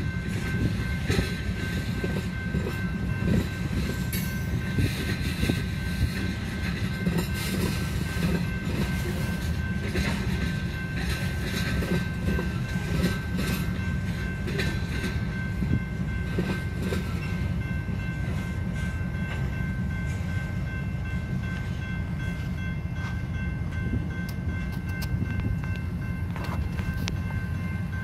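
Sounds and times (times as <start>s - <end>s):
wheels clicking over rail joints: 0.0s - 20.8s
freight train rumbling: 0.0s - 28.0s.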